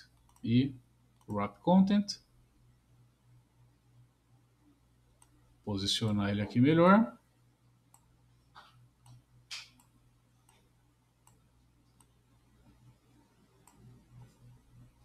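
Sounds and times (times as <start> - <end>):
faint computer mouse clicks: 0.1 - 0.5, 5.2 - 5.4, 7.9 - 12.2, 13.6 - 14.3.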